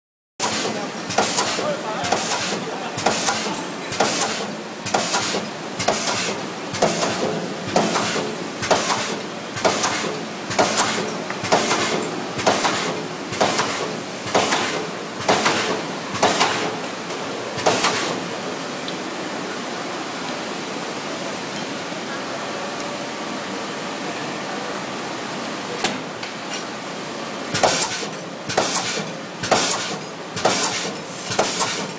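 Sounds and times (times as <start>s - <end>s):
machine stroke with hiss: 0.4s - 16.9s, 17.6s - 18.3s, 27.5s - 31.9s.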